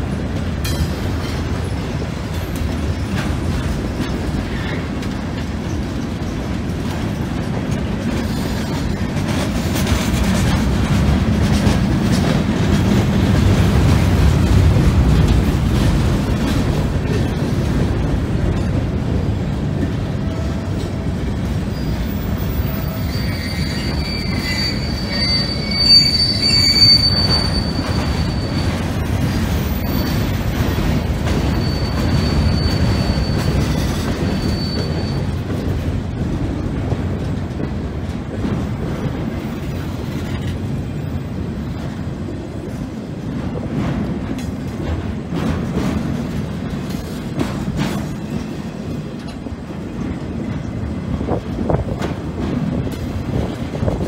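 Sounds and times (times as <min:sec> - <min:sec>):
freight train cars rumbling: 0:00.0 - 0:54.0
train wheels squealing: 0:08.1 - 0:09.0, 0:21.5 - 0:35.9.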